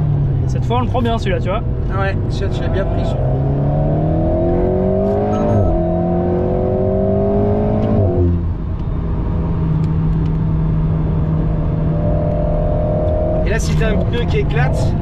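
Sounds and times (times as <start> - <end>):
car engine accelerating: 0.0 - 15.0
tyre and road noise: 0.0 - 15.0.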